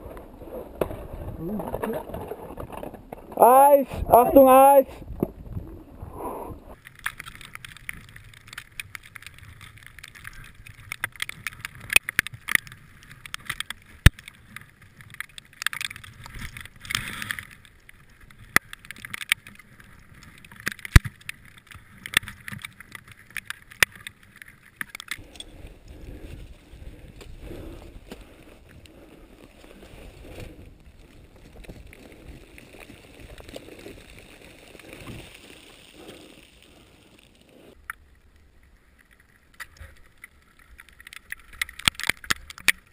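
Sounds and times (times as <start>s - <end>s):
snow crunching and scraping: 24.2s - 37.8s.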